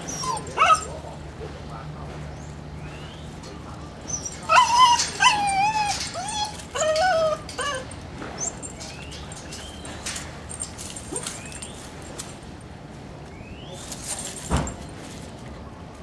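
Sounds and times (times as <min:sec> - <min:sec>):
dog whining: 0:00.0 - 0:01.0, 0:04.0 - 0:09.9.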